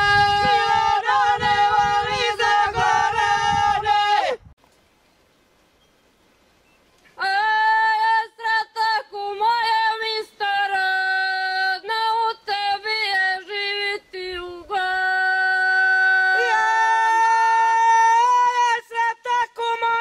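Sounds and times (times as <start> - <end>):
women singing unaccompanied: 0.0 - 4.3, 7.2 - 20.0.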